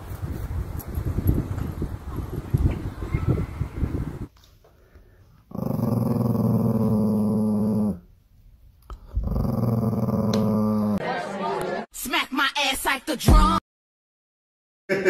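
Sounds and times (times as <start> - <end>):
small dog growling: 5.5 - 8.1, 9.0 - 11.0.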